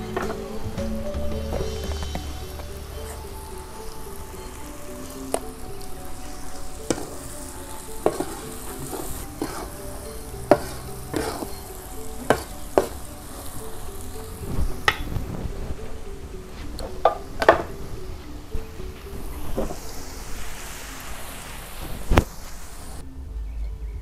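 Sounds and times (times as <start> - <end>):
low sizzle: 0.0 - 23.2
metal spatula scraping wok: 7.9 - 13.0.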